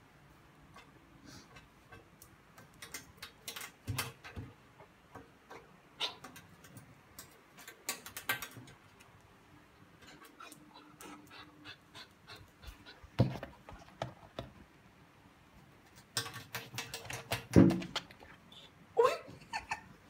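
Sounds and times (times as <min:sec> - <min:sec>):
dog claws clicking on tiles: 0:00.7 - 0:09.3, 0:15.9 - 0:18.4.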